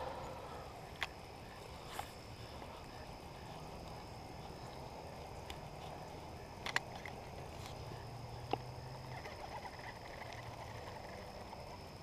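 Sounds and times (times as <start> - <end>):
frog croaking: 0.0 - 0.8
faint steady high tone: 0.0 - 5.2.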